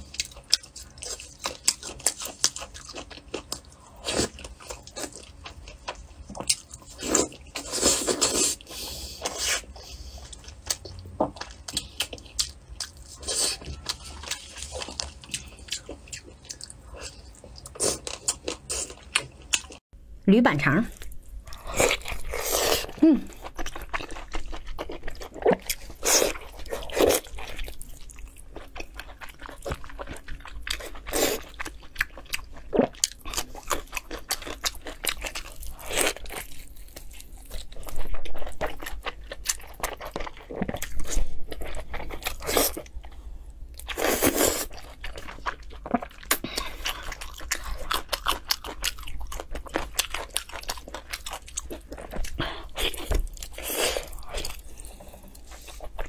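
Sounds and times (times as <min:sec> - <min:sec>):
biting and chewing: 0:21.1 - 0:43.1, 0:43.8 - 0:56.0.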